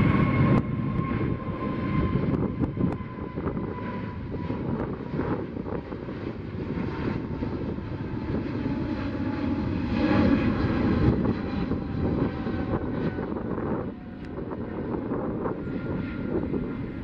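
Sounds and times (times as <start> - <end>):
jet engines rumbling: 0.0 - 17.0.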